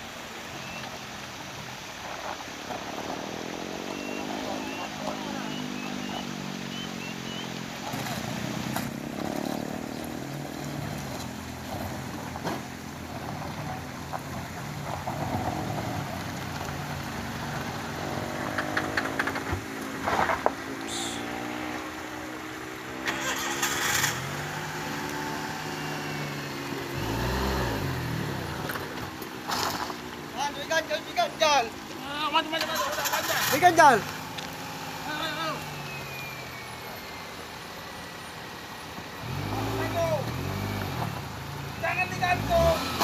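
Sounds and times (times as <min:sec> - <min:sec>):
car engine revving: 0:02.0 - 0:43.0.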